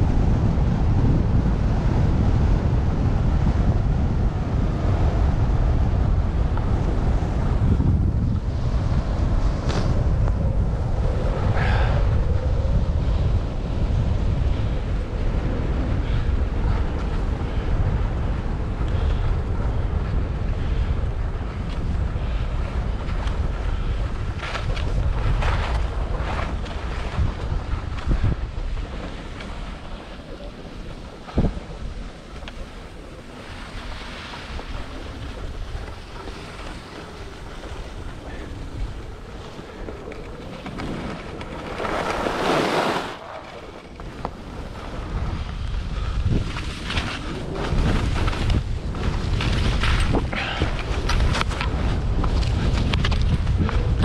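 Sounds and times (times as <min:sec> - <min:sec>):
wind buffeting microphone: 0:00.0 - 0:54.0
skis sliding over snow: 0:16.0 - 0:54.0.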